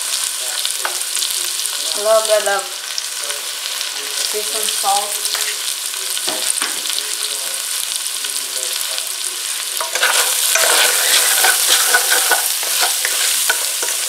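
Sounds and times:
vegetables sizzling in a pan: 0:00.0 - 0:14.0
stirring and scraping in pan: 0:05.3 - 0:06.7, 0:09.4 - 0:14.0.

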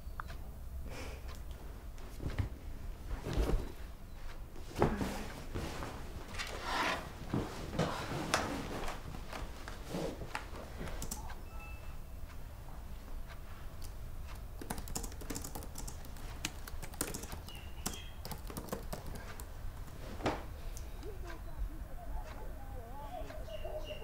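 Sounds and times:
cushions and clothing rustling: 0:01.5 - 0:11.0, 0:19.2 - 0:24.0.

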